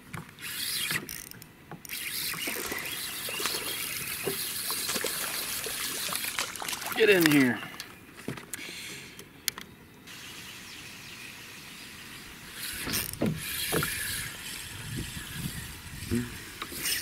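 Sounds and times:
fishing reel whirring: 0:00.4 - 0:06.4, 0:10.1 - 0:17.0.

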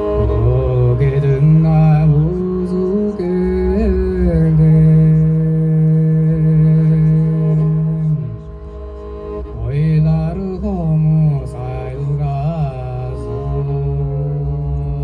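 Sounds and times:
throat singing drone with overtones: 0:00.0 - 0:15.0.

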